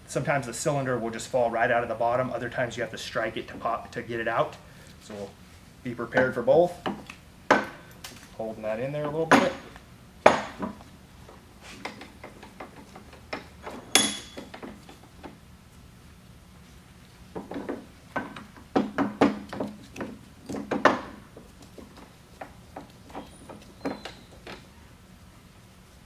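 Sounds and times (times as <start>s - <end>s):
metal clunks and knocks: 9.0s - 10.8s, 17.4s - 24.6s
sharp ringing metal clink: 13.9s - 14.4s.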